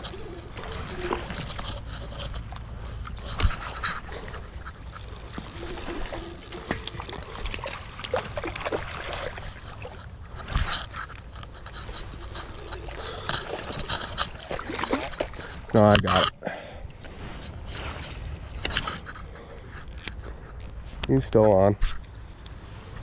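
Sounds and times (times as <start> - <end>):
creek water splashing: 0.0 - 15.7.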